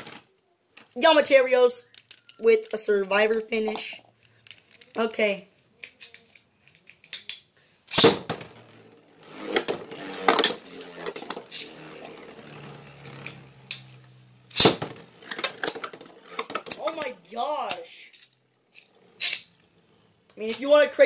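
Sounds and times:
spinning tops clacking: 8.0s - 19.6s
spinning top whirring: 8.3s - 20.3s.

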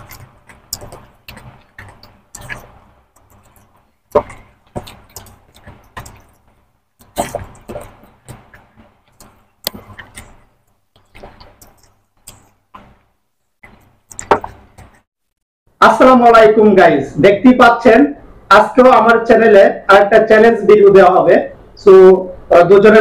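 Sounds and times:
fingers squishing rice: 0.0s - 15.0s
people chewing and lip smacking: 0.0s - 15.1s.

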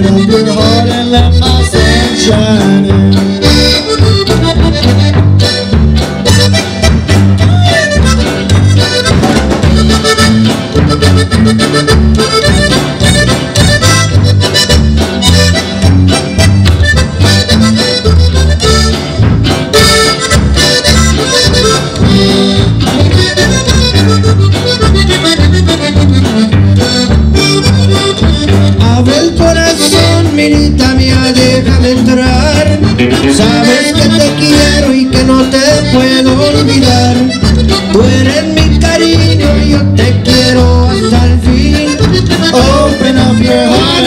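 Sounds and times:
bajo quinto: 0.0s - 44.0s
button accordion melody: 0.0s - 44.0s
drums: 0.0s - 44.0s
electric bass: 0.0s - 44.0s.

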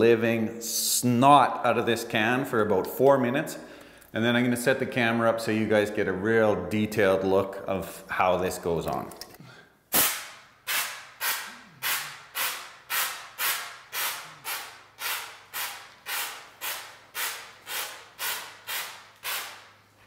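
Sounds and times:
aerosol can hissy bursts: 9.9s - 19.8s.

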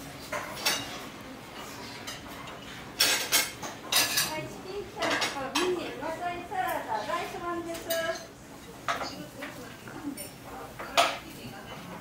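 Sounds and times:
cutlery clinking on ceramic plate: 0.3s - 1.0s, 2.0s - 4.4s, 7.7s - 11.8s.

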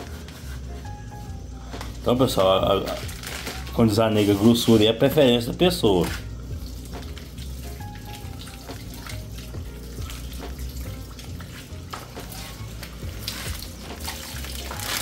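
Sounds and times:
water splashing in sink: 6.1s - 15.0s.

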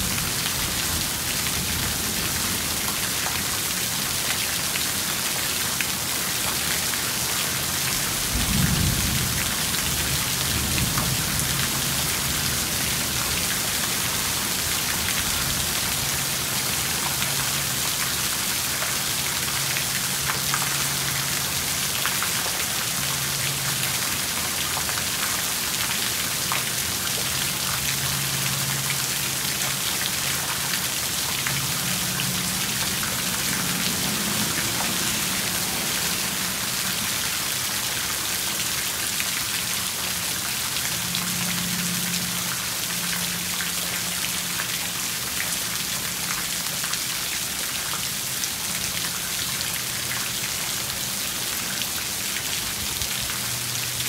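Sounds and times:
heavy rain: 0.0s - 54.0s
thunder rumbling: 8.3s - 12.2s.

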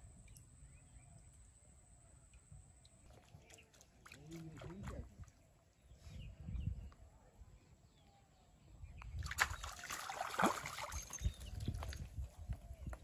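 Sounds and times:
fish thrashing and splashing: 9.3s - 11.4s.

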